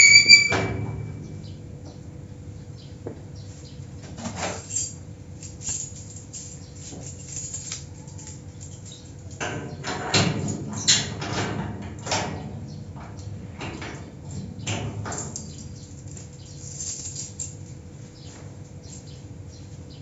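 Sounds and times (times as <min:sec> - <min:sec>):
garage door squeaking and scraping: 0:00.0 - 0:01.8, 0:09.4 - 0:17.4.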